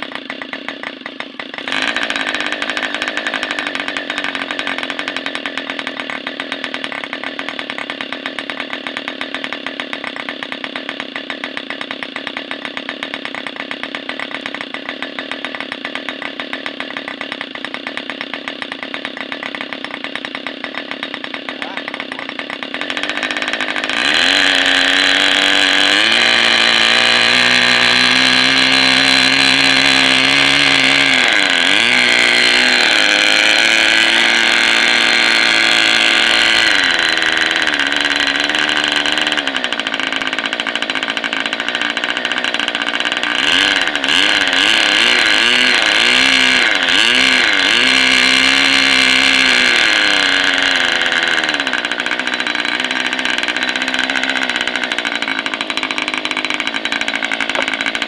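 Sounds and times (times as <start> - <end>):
model aircraft engine buzzing: 0.0 - 58.0.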